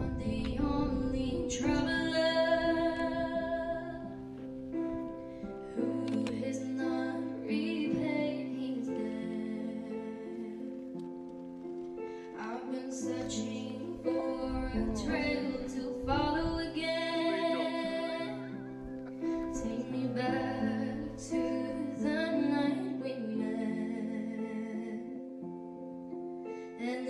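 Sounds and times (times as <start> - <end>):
song with singing voice: 0.0 - 11.6, 12.2 - 25.4.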